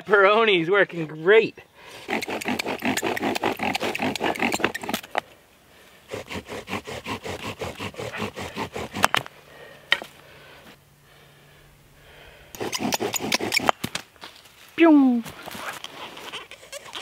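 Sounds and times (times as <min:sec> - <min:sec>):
bow drill squeaking strokes: 0:02.0 - 0:05.1, 0:12.6 - 0:13.9, 0:15.7 - 0:17.0.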